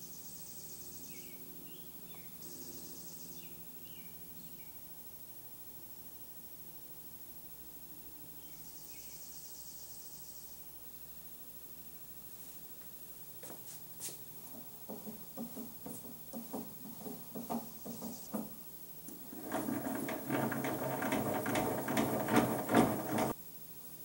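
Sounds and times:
handwheel cranking rattle: 15.0s - 23.4s.

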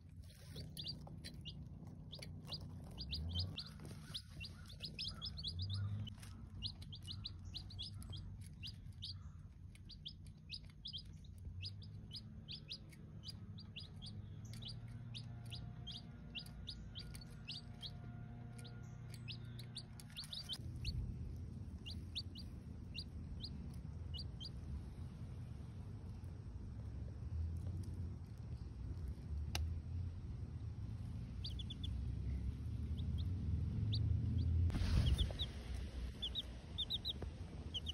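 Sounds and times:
baby chicks peeping: 0.0s - 27.0s, 30.6s - 37.9s
low background hum: 0.0s - 37.9s.

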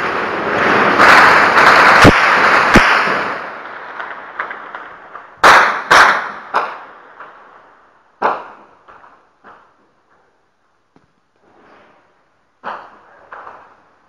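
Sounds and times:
loud echoing gunshots: 0.0s - 4.6s, 5.4s - 6.9s.

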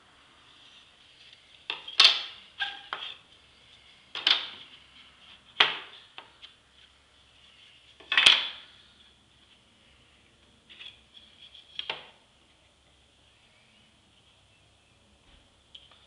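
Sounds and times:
wooden slats clacking: 1.7s - 3.2s, 4.2s - 4.6s.

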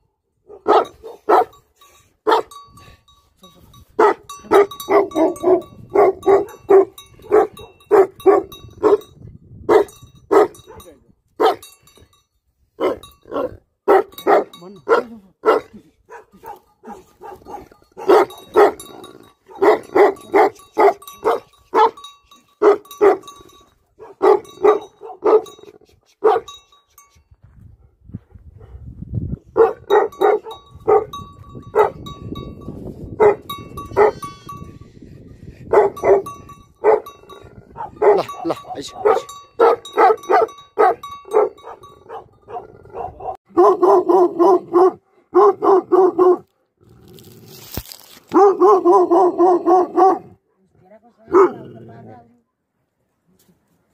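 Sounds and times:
large dog barking deeply: 0.4s - 1.6s, 4.0s - 9.0s, 9.7s - 11.6s, 12.8s - 22.0s, 24.0s - 25.6s, 29.5s - 32.0s, 33.2s - 34.2s, 35.7s - 46.5s, 48.3s - 50.5s, 51.3s - 51.9s.

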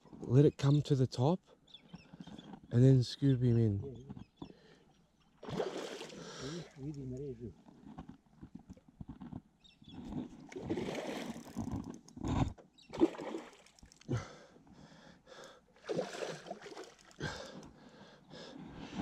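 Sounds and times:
fish thrashing and splashing water: 5.4s - 6.2s, 10.4s - 11.7s, 12.9s - 14.1s, 15.8s - 17.3s.

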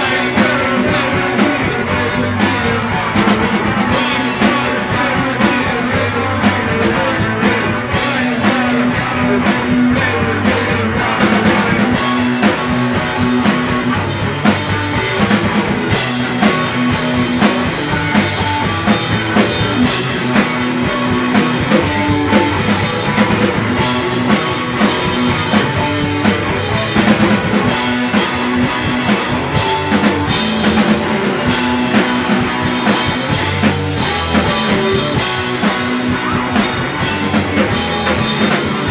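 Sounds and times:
drum kit: 0.0s - 38.9s
electric guitar: 0.0s - 38.9s.

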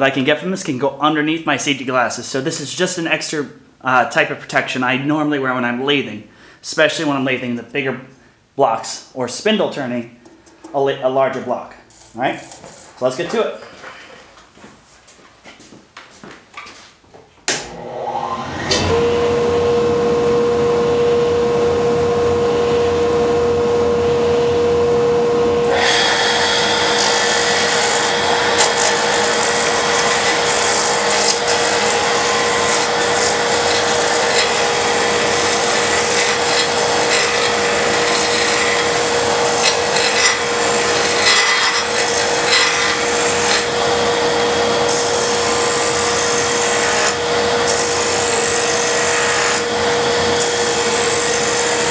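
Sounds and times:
lathe motor whine: 17.6s - 51.9s
gouge scraping spinning wood: 25.6s - 51.9s.

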